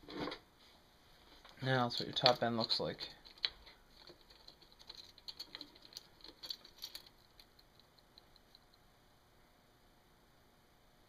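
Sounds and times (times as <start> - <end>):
metal parts clicking and tapping: 1.5 - 8.8
rapid even ticking: 1.8 - 8.8.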